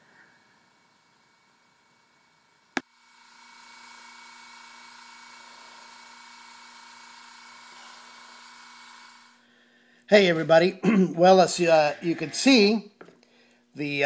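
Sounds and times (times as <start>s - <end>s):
small electric motor humming: 0.2s - 9.4s.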